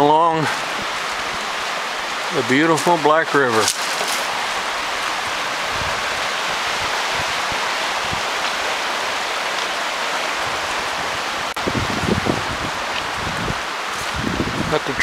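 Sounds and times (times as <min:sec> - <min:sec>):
river rapids rushing over rocks: 0:00.3 - 0:11.6.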